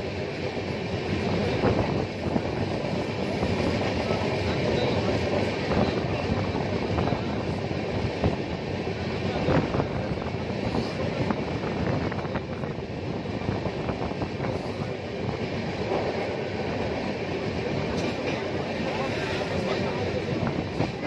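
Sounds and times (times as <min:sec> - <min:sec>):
train coach rumble and rattle: 0:00.0 - 0:21.0.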